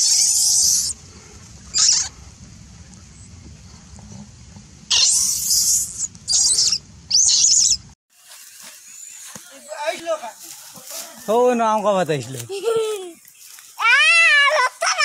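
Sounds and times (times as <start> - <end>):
monkey shrieking: 0.0 - 0.9, 1.7 - 2.1, 4.9 - 7.8.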